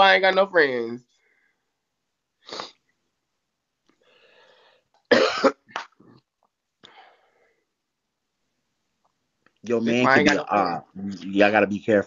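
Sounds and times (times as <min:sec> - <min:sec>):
person coughing: 0:05.1 - 0:06.0.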